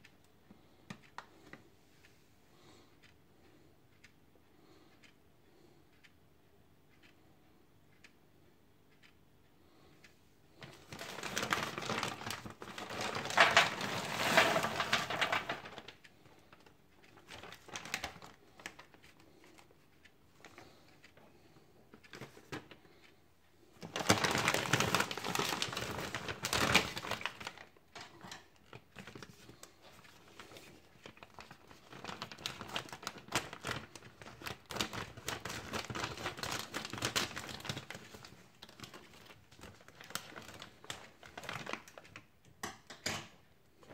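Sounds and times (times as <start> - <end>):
frozen fries rattling onto tray: 10.6 - 15.9
plastic bag crinkling: 10.6 - 19.7, 23.8 - 42.3.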